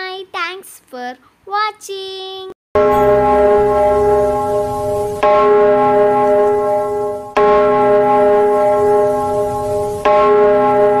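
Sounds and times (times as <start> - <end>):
bell ringing: 2.8 - 11.0.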